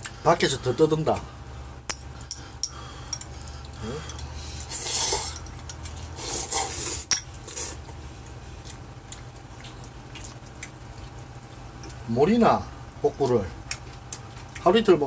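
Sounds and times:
noodles slurped: 3.7 - 7.8
chopsticks clicking against bowls: 5.3 - 6.0.

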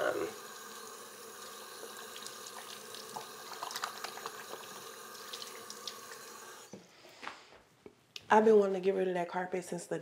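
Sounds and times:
tap water running into sink: 0.0 - 6.8
water drips and splashes: 1.9 - 6.4.

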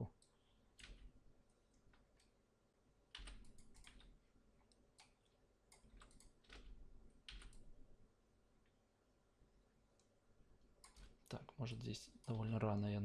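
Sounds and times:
computer keyboard and mouse clicks: 0.2 - 2.4, 3.1 - 7.7, 10.8 - 11.4.

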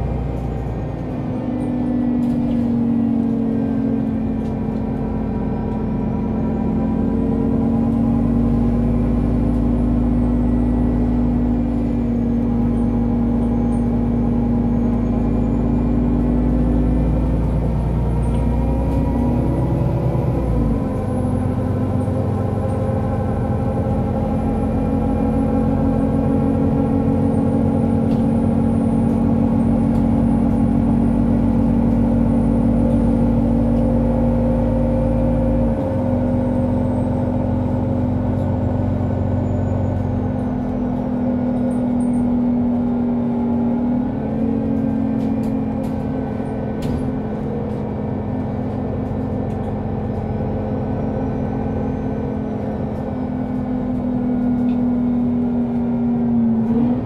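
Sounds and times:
bus engine humming: 0.0 - 57.0.

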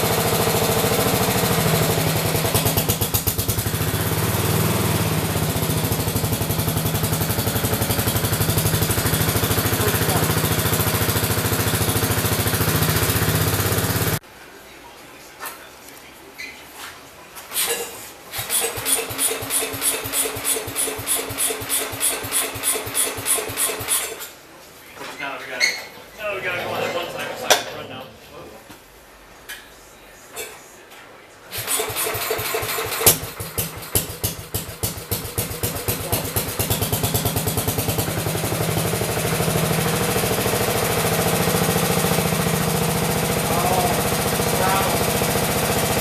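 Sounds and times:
small engine chugging: 0.0 - 14.2, 18.4 - 24.2, 31.5 - 46.0.

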